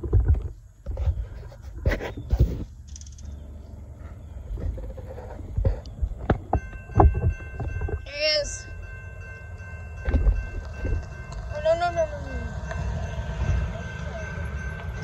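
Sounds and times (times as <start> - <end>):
wind buffeting microphone: 3.9 - 15.0
distant locomotive horn: 8.2 - 15.0.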